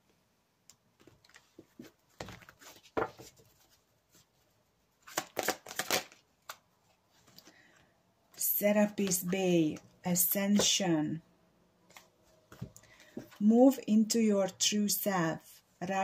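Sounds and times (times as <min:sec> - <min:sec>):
cards shuffled by hand: 0:05.0 - 0:06.6.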